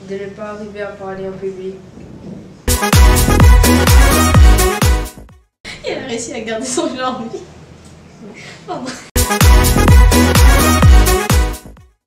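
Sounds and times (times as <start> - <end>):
electronic dance music: 2.7 - 5.4, 9.2 - 12.0
punchy kick drum beat: 2.7 - 5.5, 9.2 - 11.9.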